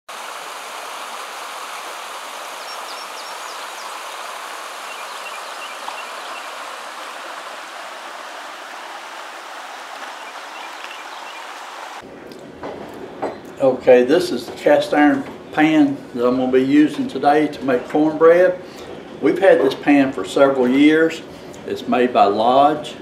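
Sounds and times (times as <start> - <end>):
creek babbling over rocks: 0.1 - 12.0.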